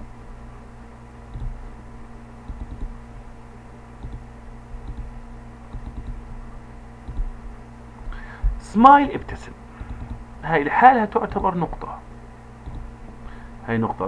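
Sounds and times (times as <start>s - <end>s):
low electrical hum: 0.0s - 14.0s
keyboard taps: 2.5s - 2.9s, 5.7s - 6.2s
mouse clicks: 5.7s - 6.2s, 12.6s - 12.9s.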